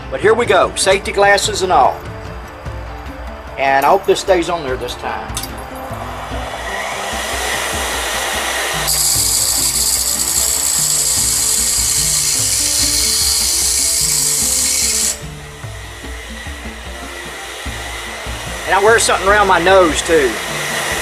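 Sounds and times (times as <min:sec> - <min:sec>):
high grinding hiss: 0:01.1 - 0:21.0
bench grinder running: 0:05.5 - 0:21.0.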